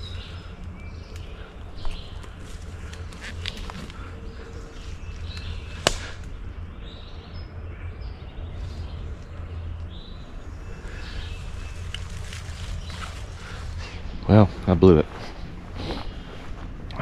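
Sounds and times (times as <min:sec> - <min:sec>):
songbirds singing: 0:00.0 - 0:17.0
steady low rumble: 0:00.0 - 0:17.0
sharp snap: 0:05.8 - 0:06.3.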